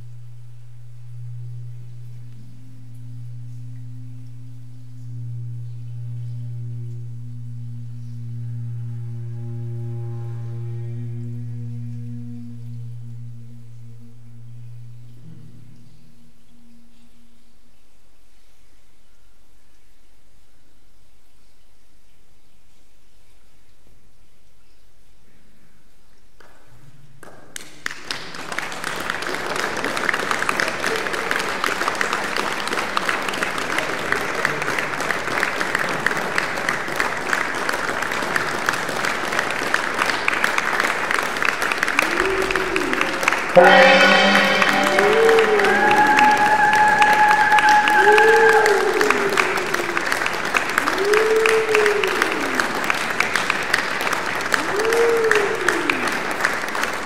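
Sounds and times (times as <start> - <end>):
audience applauding: 27.6 - 57.0
swooping pitched tone: 41.9 - 50.3.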